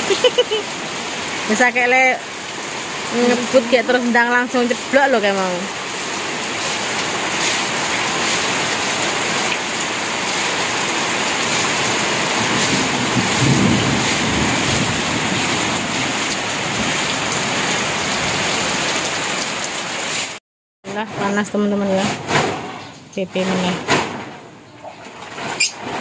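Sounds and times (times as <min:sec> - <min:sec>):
heavy rain pouring: 0:00.0 - 0:20.4
water streaming off metal roof: 0:00.0 - 0:20.4, 0:21.2 - 0:26.0.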